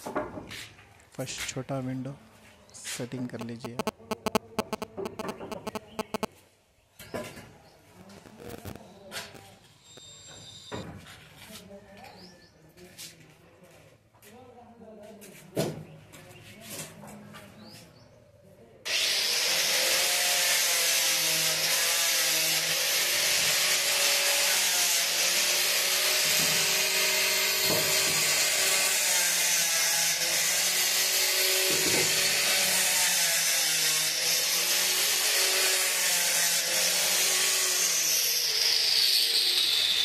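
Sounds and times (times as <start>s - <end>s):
angle grinder sanding wood: 18.9s - 40.0s.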